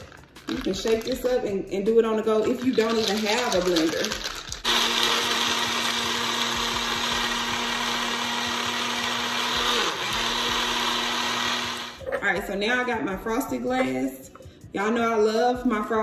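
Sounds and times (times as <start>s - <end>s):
blender blending ice: 3.0s - 12.0s.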